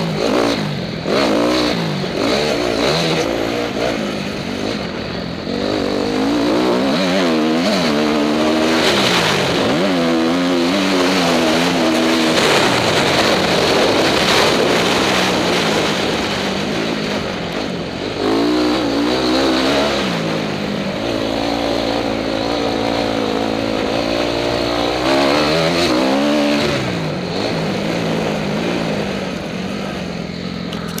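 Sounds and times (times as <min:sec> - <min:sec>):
motocross engine revving: 0:00.0 - 0:31.0
wind rushing over microphone: 0:00.0 - 0:31.0.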